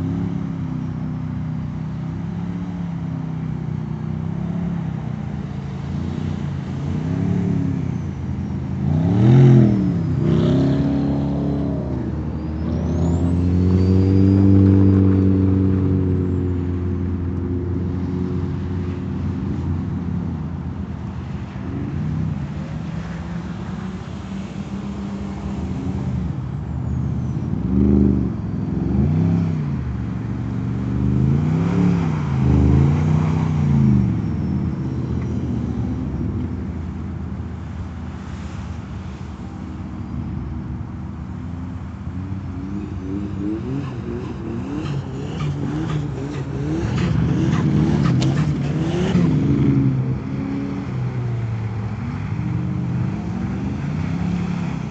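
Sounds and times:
car engine revving: 0:42.4 - 0:51.0.

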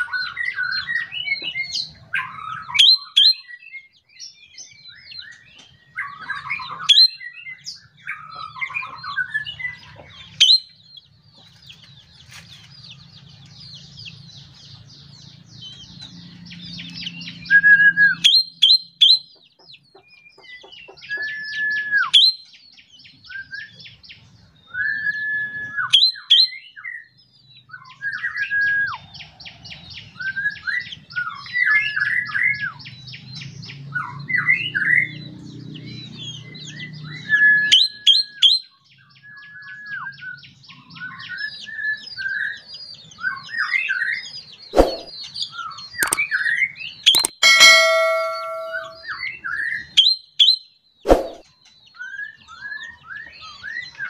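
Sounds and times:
bird singing varied song: 0:00.0 - 0:54.0.

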